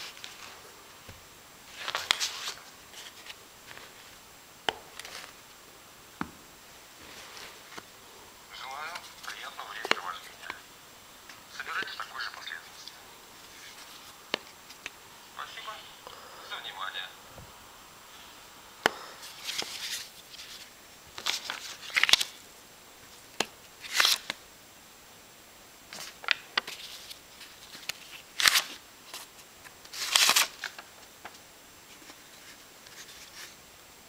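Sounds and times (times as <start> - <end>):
paper rustles: 1.7 - 4.2, 4.9 - 5.4, 19.2 - 22.4, 23.8 - 24.4, 25.9 - 31.0, 31.9 - 33.6.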